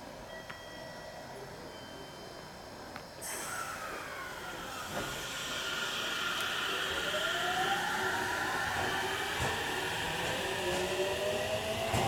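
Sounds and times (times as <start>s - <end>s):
train hiss: 3.2s - 12.0s
electric train motor whine: 3.3s - 12.0s.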